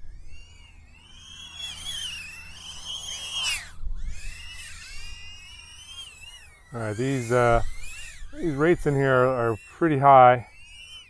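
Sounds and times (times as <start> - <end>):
drone propellers whining: 0.0 - 11.0
wind rumble on microphone: 3.7 - 5.3.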